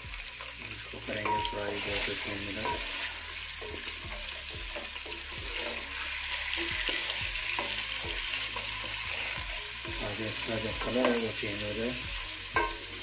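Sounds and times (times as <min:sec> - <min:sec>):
chicken sizzling in oil: 0:00.0 - 0:13.0
spatula scraping and knocking pot: 0:12.5 - 0:12.9.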